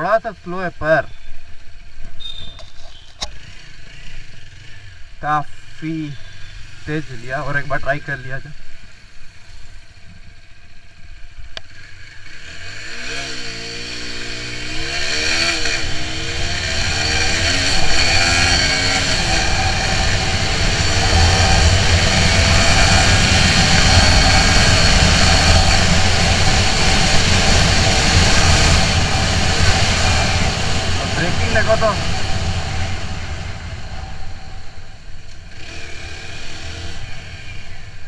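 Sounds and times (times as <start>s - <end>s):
motorcycle engine accelerating: 1.6s - 38.0s
rushing wind: 12.2s - 38.0s.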